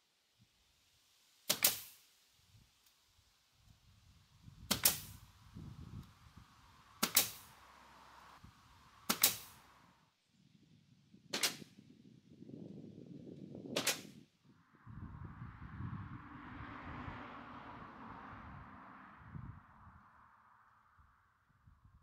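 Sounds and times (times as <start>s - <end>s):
nail gun firing into wood: 1.5s - 2.0s, 4.7s - 5.2s, 7.0s - 7.5s, 9.1s - 9.6s, 11.3s - 11.7s, 13.8s - 14.2s.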